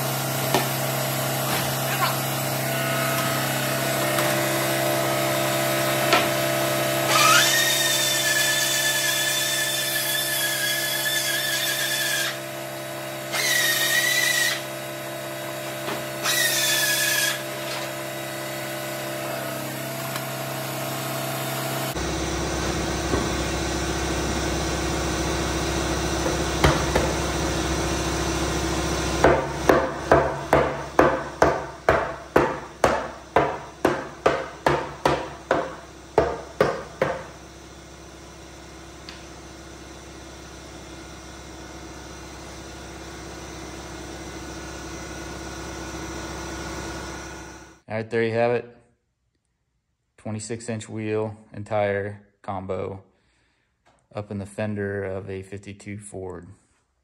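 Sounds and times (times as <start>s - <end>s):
power tool motor whining: 0.0s - 30.1s, 31.7s - 47.8s
sharp evenly spaced knocks: 29.3s - 37.2s.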